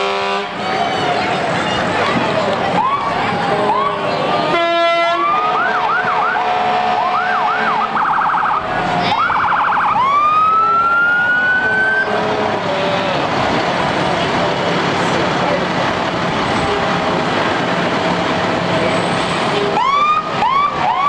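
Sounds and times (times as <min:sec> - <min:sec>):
short horn blast: 0:00.0 - 0:00.6, 0:04.5 - 0:07.8
fire engine siren: 0:00.0 - 0:01.6, 0:02.6 - 0:15.2, 0:19.0 - 0:21.0.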